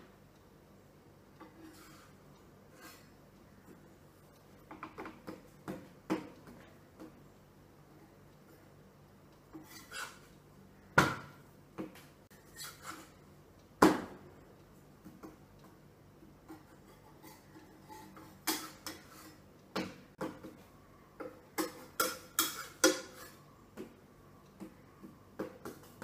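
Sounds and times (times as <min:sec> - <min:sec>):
metal utensil clicking on pan: 0:16.5 - 0:19.4, 0:21.2 - 0:23.4.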